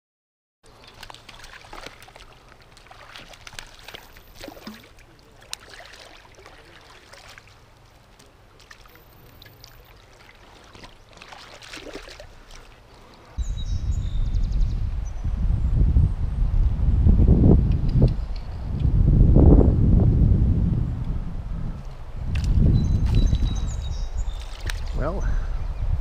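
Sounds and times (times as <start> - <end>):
moving water: 0.6 - 13.4, 21.8 - 25.6
fish thrashing and splashing: 0.7 - 13.4, 24.3 - 25.0.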